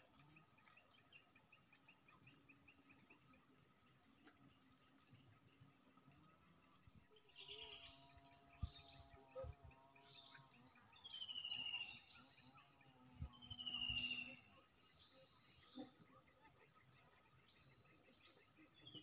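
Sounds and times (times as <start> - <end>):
bird chirps: 7.1 - 19.0.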